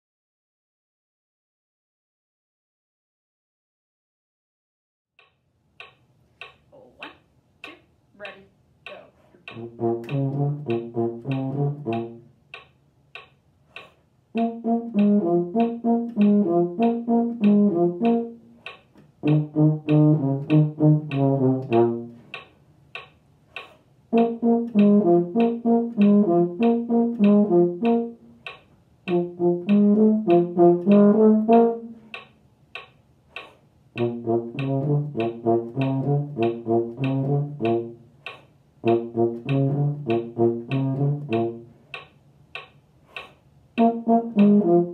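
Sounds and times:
metronome clicking: 5.2 - 44.9
brass horn playing: 9.6 - 12.3, 14.3 - 18.6, 19.2 - 22.2, 24.1 - 28.4, 29.1 - 32.1, 34.0 - 38.1, 38.8 - 41.7, 43.8 - 44.9.

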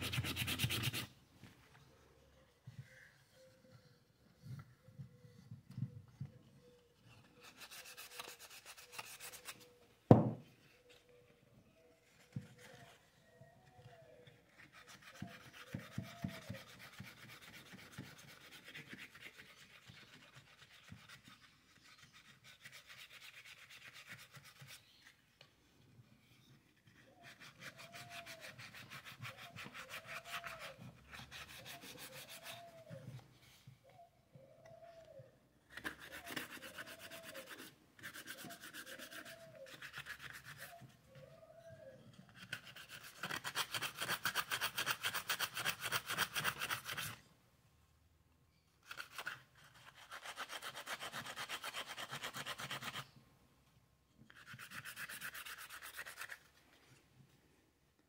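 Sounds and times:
sandpaper rubbing on wood: 0.0 - 1.1, 7.4 - 9.8, 14.5 - 24.8, 26.9 - 32.9, 35.8 - 40.8, 42.3 - 47.2, 48.9 - 53.0, 54.4 - 56.5
faint squeaks: 1.6 - 7.6
sharp knock: 10.1 - 10.4.

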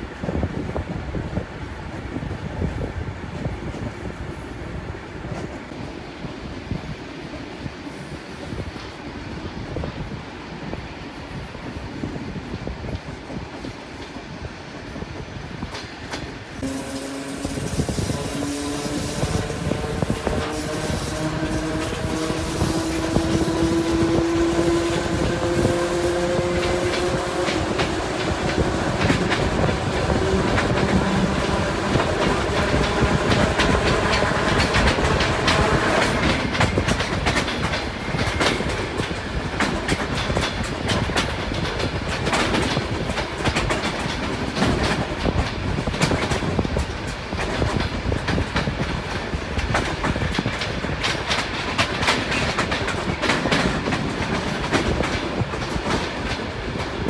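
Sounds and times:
train wheels clacking over rail joints: 15.6 - 57.0.

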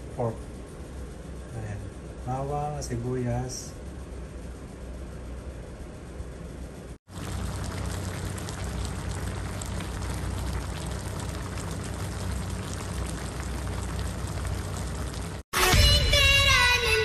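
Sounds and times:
low hum: 3.6 - 17.0
stew bubbling and crackling: 7.1 - 15.4
music: 15.6 - 17.0.

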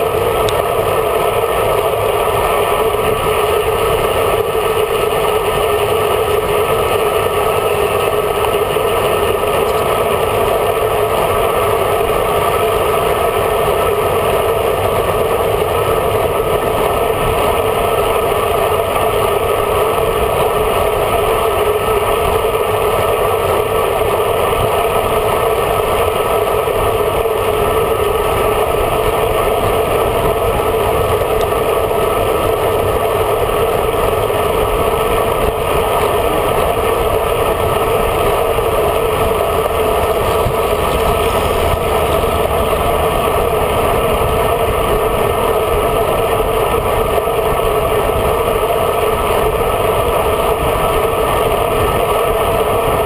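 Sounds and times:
tyre noise on asphalt: 0.0 - 53.0
wind rushing over microphone: 0.0 - 53.0.

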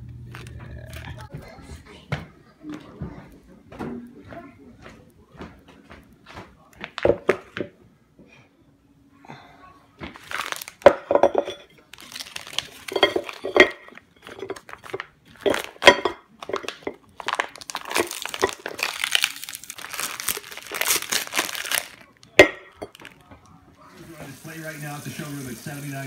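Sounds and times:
plastic packaging crinkling: 10.1 - 23.2.

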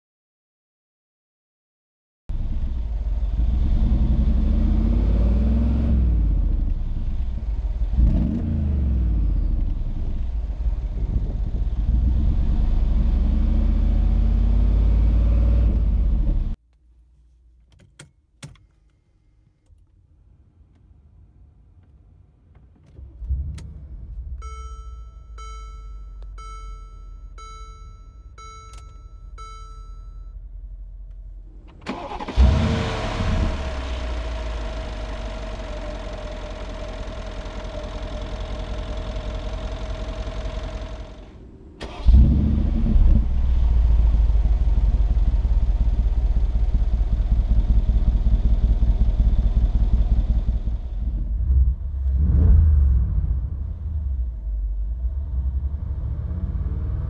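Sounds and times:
car engine starting and idling: 2.3 - 16.6, 17.6 - 57.0
engine revving: 2.6 - 16.6, 31.9 - 57.0
dashboard warning chime: 24.4 - 30.5.

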